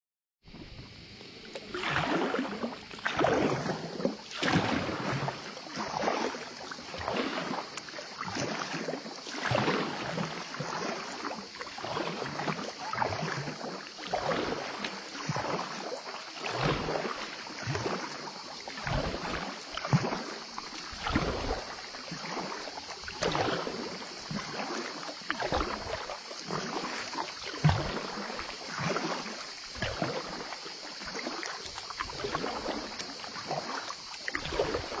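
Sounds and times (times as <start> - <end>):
paddle swishing and splashing: 0.5 - 35.0.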